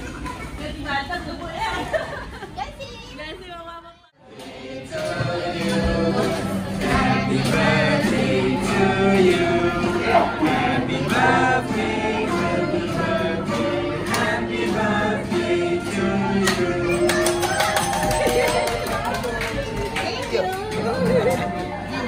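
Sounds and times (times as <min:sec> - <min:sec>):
group singing a celebration song: 0:04.2 - 0:18.4
musical backing: 0:04.4 - 0:22.0.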